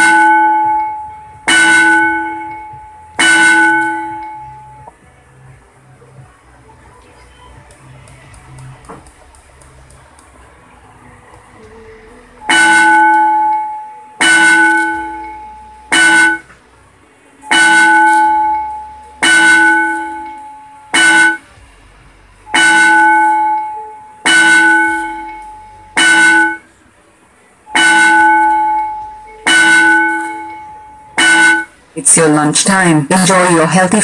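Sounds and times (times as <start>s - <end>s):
school bell ringing: 0.0s - 4.9s, 12.4s - 16.5s, 17.5s - 21.5s, 22.5s - 26.7s, 27.7s - 31.8s.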